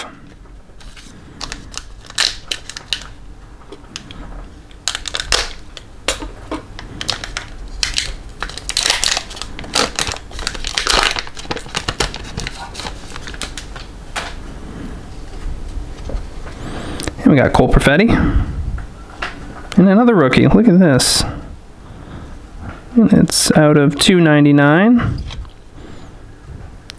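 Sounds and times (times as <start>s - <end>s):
wrapper crinkling and crumpling: 0.8s - 3.2s, 3.8s - 14.4s.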